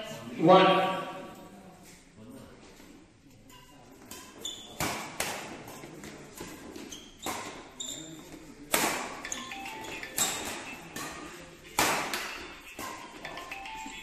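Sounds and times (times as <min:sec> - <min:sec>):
shoes squeaking on court: 0:03.5 - 0:08.6
racquets striking shuttlecock: 0:08.7 - 0:14.0.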